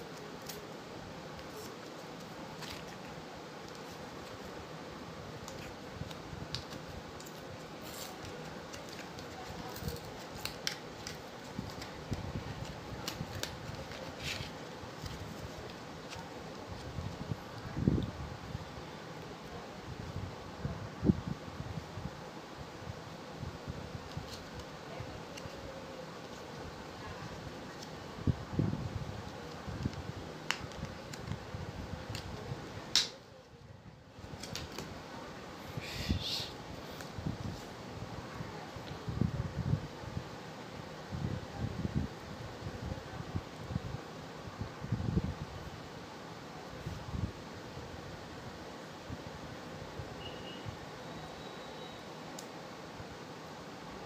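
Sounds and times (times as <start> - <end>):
background hiss: 0.0 - 54.0
plastic snapping: 32.9 - 33.2.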